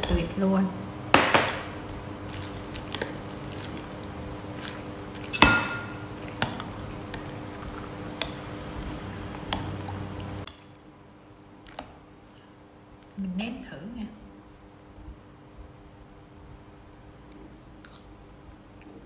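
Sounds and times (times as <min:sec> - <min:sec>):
wet sloshing of stirring: 0:02.2 - 0:10.9.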